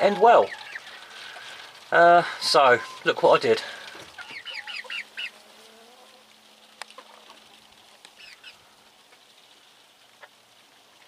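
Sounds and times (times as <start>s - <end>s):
chicks cheeping: 0.0s - 1.0s, 4.1s - 5.4s, 8.1s - 8.7s.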